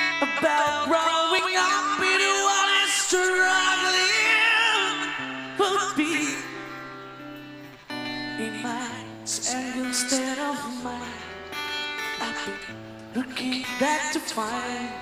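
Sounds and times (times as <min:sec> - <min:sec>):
man singing with vibrato: 0:00.0 - 0:07.3, 0:07.9 - 0:15.0.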